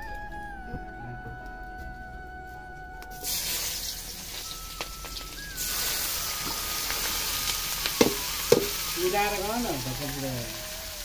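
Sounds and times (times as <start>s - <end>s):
food sizzling in hot oil: 3.2s - 11.0s
sharp knocks: 8.0s - 8.8s.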